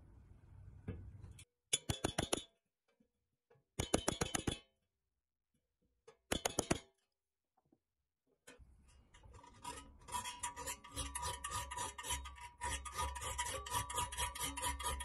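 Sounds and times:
metal tapping on steel toy: 3.8s - 4.6s.

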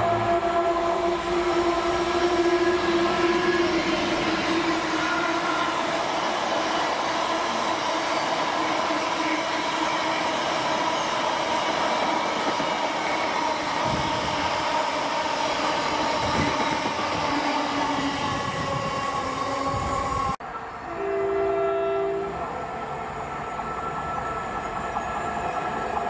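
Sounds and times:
train wheels rattling on rails: 1.0s - 20.4s.

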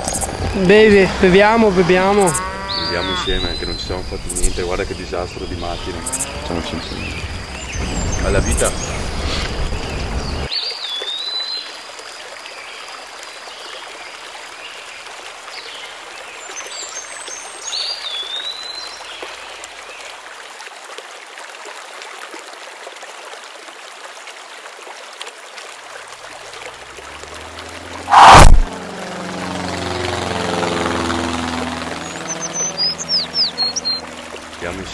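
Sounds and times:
sudden loud burst: 28.1s - 28.7s.

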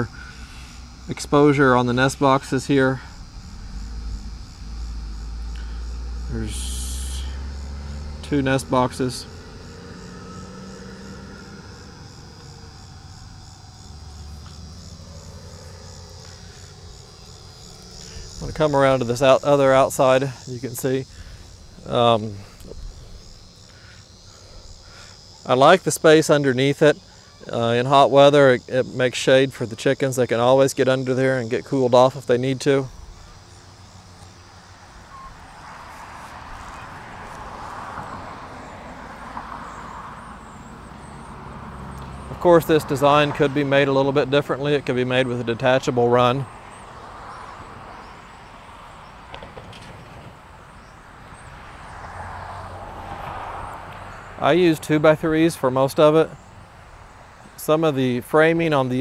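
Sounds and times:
low steady rumble: 0.0s - 9.7s
car passing: 0.0s - 29.4s, 30.8s - 59.0s
insects chirping: 0.0s - 59.0s.

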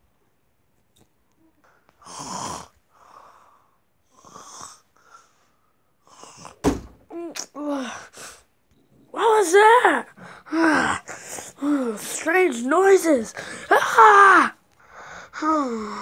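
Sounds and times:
high-pitched vocal sounds: 9.2s - 14.6s
person breathing loudly: 14.8s - 16.0s.

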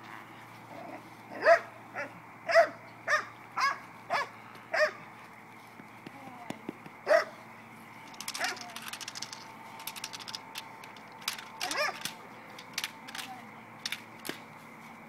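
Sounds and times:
dog barking: 1.4s - 5.0s, 7.1s - 7.3s, 11.7s - 12.0s.

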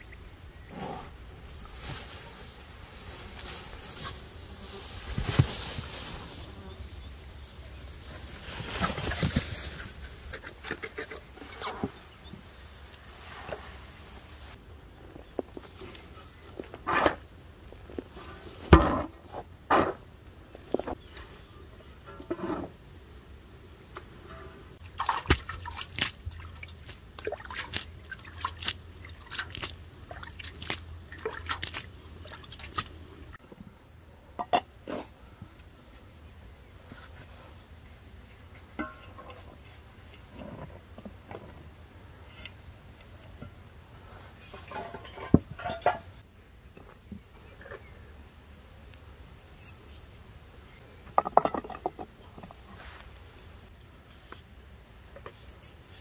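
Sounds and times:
crickets chirring: 0.0s - 56.0s
clay pots clinking: 38.7s - 39.5s.

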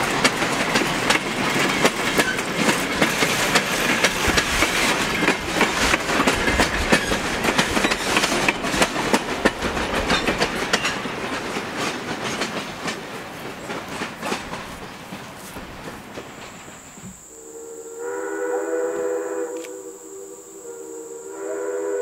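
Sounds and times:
train wheels clicking over rail joints: 0.0s - 17.3s.

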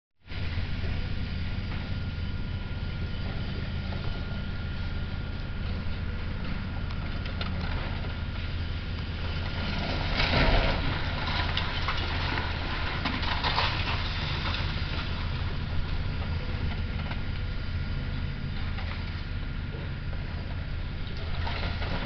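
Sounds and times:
excavator running: 0.3s - 22.0s
cracks and clatter: 6.4s - 8.2s, 9.4s - 15.5s
concrete and debris crashing down: 10.0s - 15.1s.

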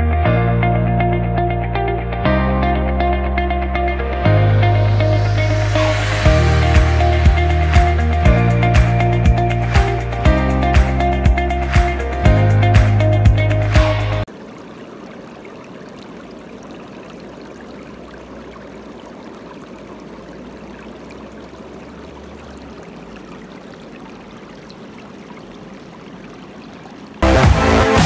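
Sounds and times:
loud music: 0.0s - 14.3s, 27.2s - 28.0s
river water over rocks: 5.2s - 8.9s, 14.2s - 28.0s.

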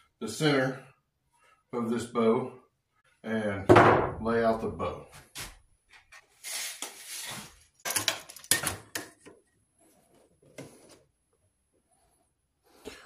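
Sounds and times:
rustling scrapes on a workbench: 6.1s - 7.7s.

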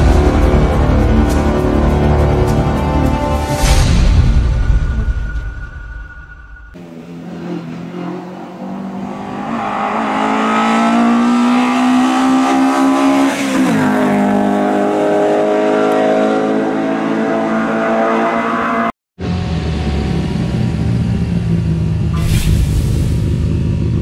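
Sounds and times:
race car engine accelerating: 6.8s - 22.2s.

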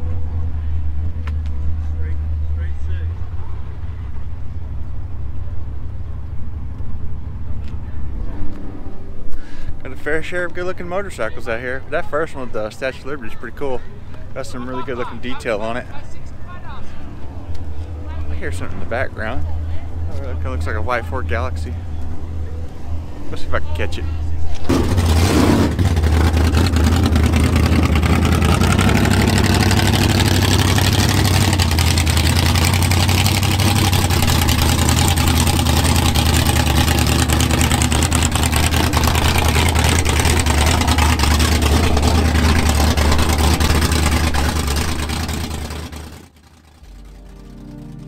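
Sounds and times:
car engine running: 24.6s - 48.0s.

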